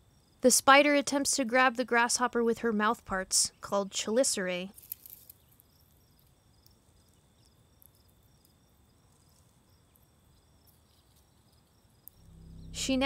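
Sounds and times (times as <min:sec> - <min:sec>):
insect chirping: 0:00.0 - 0:00.4, 0:04.8 - 0:13.0
faint high insect trill: 0:00.0 - 0:00.6, 0:04.7 - 0:13.0.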